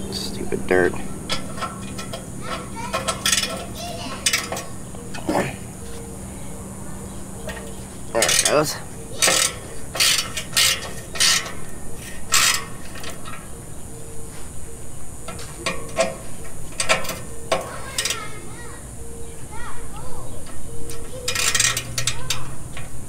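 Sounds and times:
ratchet wrench clicking: 1.3 - 4.7, 7.5 - 8.6, 9.2 - 13.4, 15.6 - 18.3, 20.9 - 22.9.

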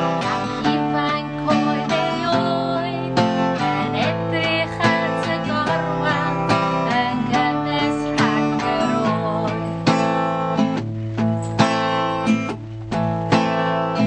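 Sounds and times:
woman singing: 0.0 - 10.3
acoustic guitar strumming: 0.0 - 14.0.

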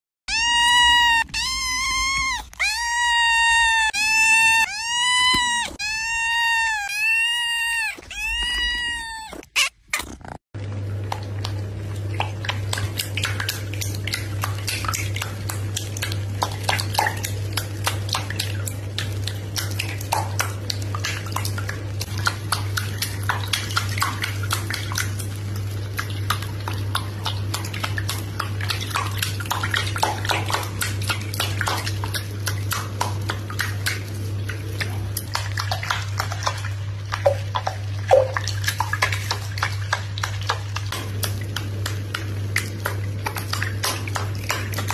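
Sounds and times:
bathwater splashing: 10.7 - 44.9.

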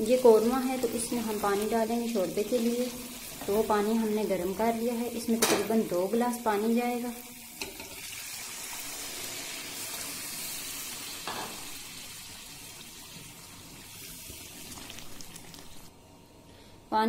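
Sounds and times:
sizzling hot oil: 0.0 - 15.9
hot water pouring into pot: 7.2 - 15.9.

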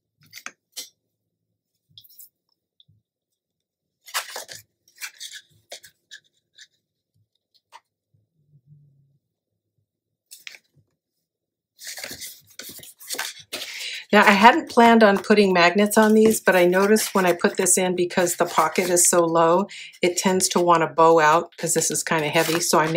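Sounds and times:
paper rustling and scraping: 4.0 - 6.9, 11.8 - 22.9.

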